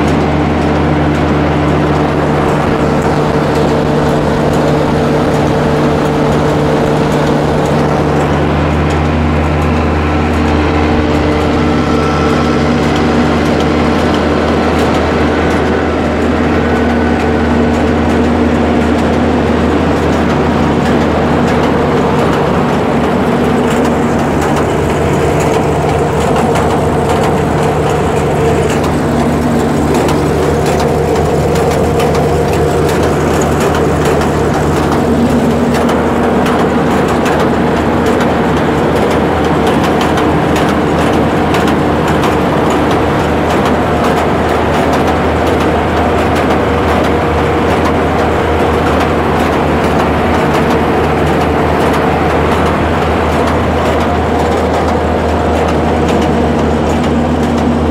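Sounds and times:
diesel engine running: 0.0 - 57.9
low hum: 0.0 - 57.9.

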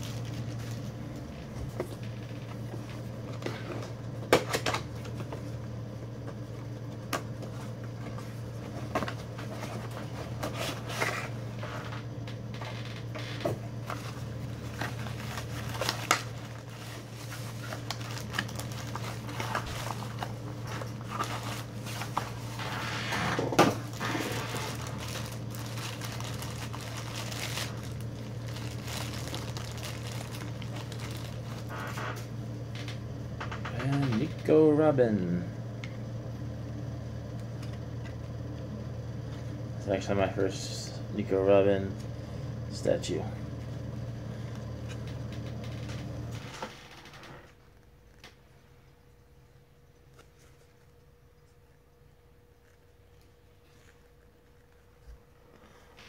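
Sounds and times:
cardboard and plastic bag rustling: 0.0 - 4.0, 7.3 - 12.0, 12.7 - 32.2
steady low hum: 0.0 - 56.0.

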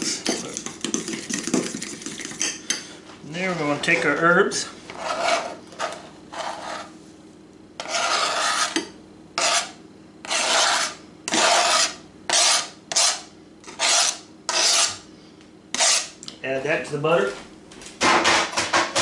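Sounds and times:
knife scraping plastic cutting board: 4.9 - 6.9, 7.8 - 8.8.

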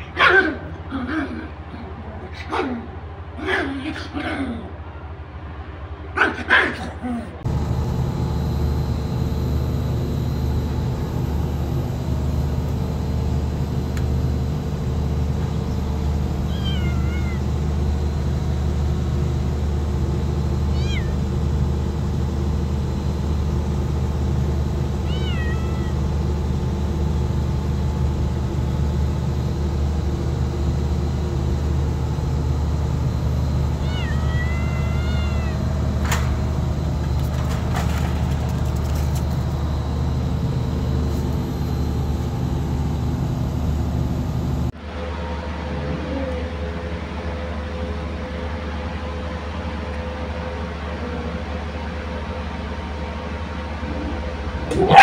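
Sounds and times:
cats meowing: 16.3 - 17.5, 20.7 - 21.2, 25.0 - 26.0, 33.8 - 35.7.

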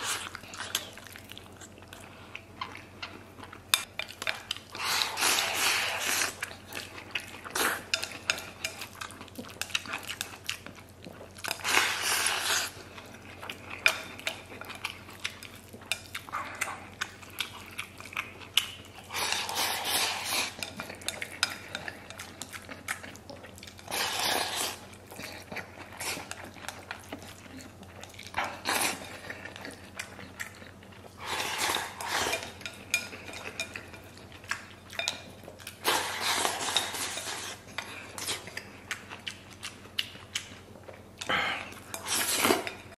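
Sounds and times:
chopsticks clinking on bowl: 6.7 - 10.4, 31.3 - 38.4.

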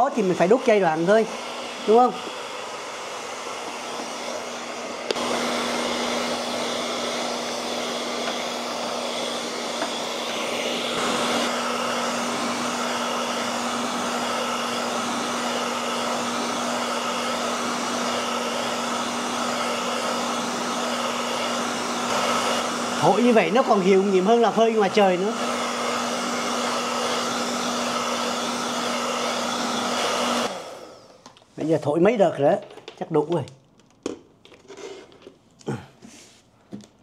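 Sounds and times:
hair dryer blowing: 0.0 - 33.3
hair dryer switch click: 5.0 - 5.2.

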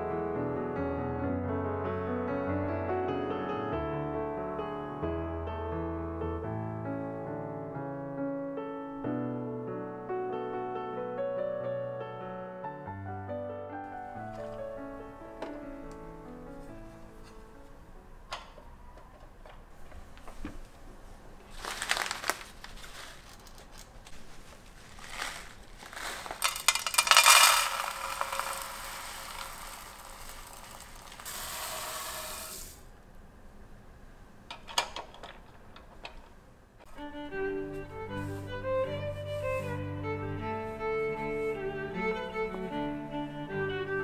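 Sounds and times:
plastic bags crinkling: 21.4 - 32.7
flour pouring: 21.5 - 32.8.

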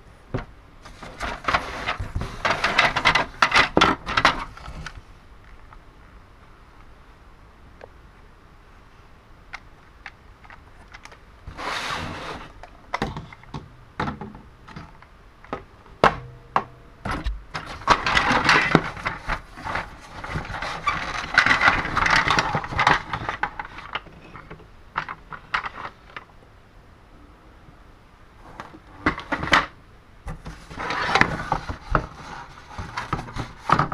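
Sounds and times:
cardboard scraping: 0.8 - 5.0, 11.4 - 13.3, 17.1 - 24.5, 30.3 - 33.9.

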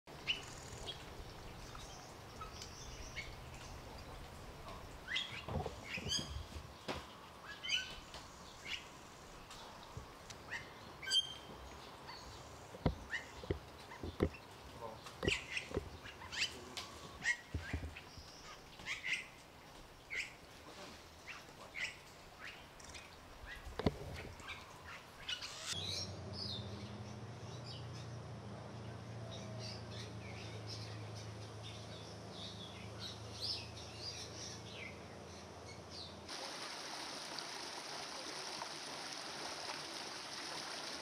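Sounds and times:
birds chirping and whistling: 5.0 - 6.5, 10.5 - 11.5, 15.2 - 19.3, 21.3 - 26.8.

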